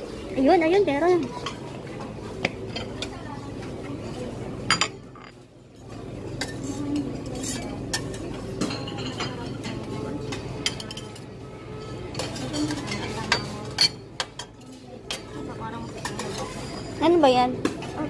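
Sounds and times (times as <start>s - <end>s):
murmur of background chatter: 0.0s - 18.0s
plates and cutlery clinking: 4.6s - 17.1s.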